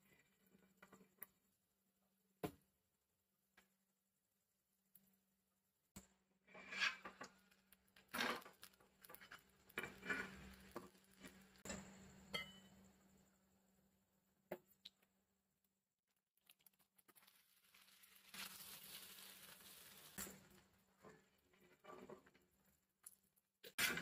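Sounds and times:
spatula scraping an iron griddle: 6.4s - 7.4s, 8.1s - 11.8s.

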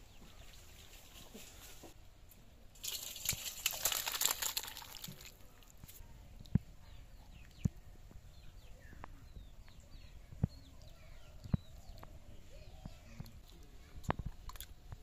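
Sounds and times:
small birds chirping: 0.0s - 1.9s, 5.4s - 14.5s.

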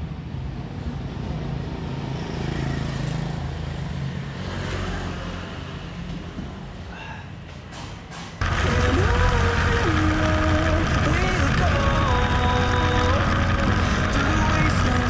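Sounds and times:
vehicle engine passing by: 8.4s - 15.0s.

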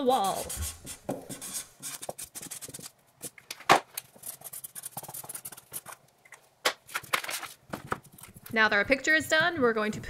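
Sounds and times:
marker scratching on paper: 0.1s - 2.9s, 4.2s - 5.9s
paper rustling: 6.8s - 8.5s.

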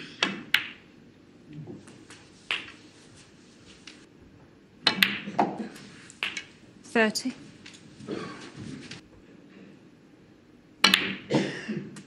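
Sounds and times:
snooker balls clicking: 0.0s - 0.9s, 1.5s - 3.0s, 4.8s - 6.6s, 10.8s - 11.3s.

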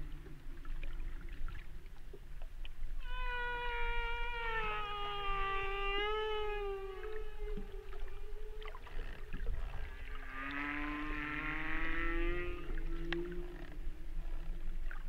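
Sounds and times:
whale song moaning calls: 3.0s - 14.8s.

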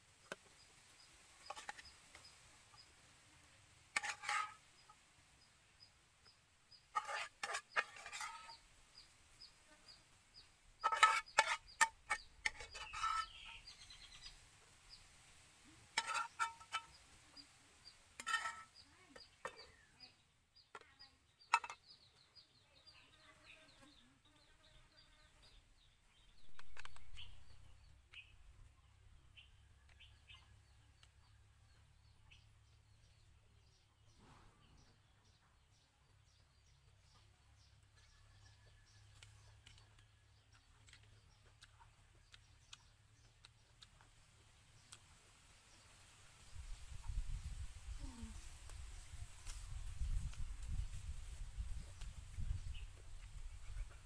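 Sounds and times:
chickens clucking: 15.8s - 17.5s.

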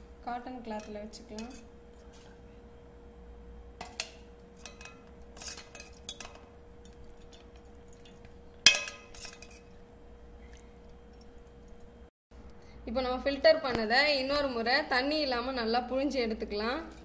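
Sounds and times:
spoon scraping and clinking strainer: 4.6s - 9.8s.

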